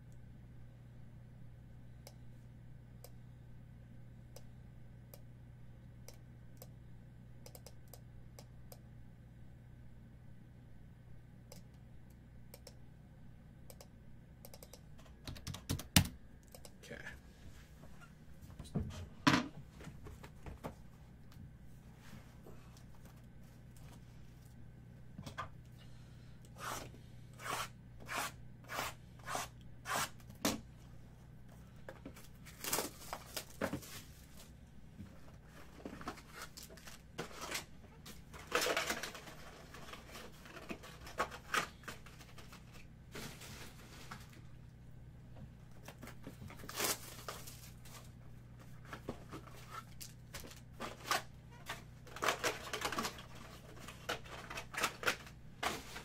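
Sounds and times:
foil pack tearing and crinkling: 0:32.4 - 0:34.1, 0:46.6 - 0:48.1, 0:49.7 - 0:56.0.

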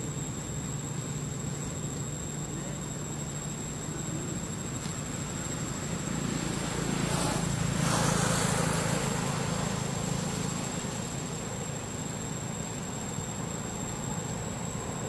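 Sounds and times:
traffic engine hum: 0:00.0 - 0:15.0
vehicle passing: 0:05.6 - 0:11.6.

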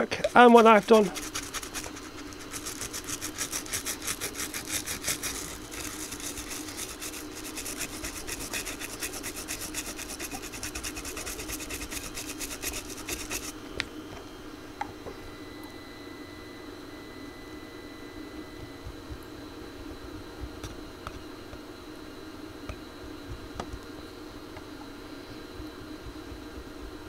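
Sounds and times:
brush scrubbing circuit board: 0:00.2 - 0:13.6.

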